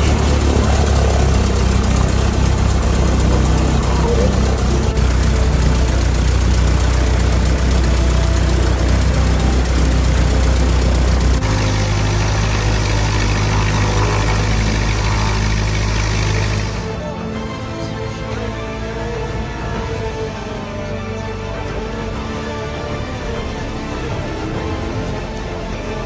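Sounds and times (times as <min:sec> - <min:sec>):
biplane piston engine running: 0:00.0 - 0:19.9.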